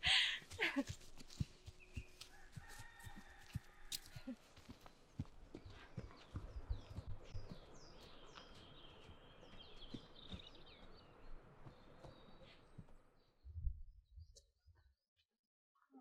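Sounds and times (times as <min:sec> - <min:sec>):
soft footsteps on forest path: 0:00.0 - 0:13.4
songbird chirping and trilling: 0:04.4 - 0:14.5.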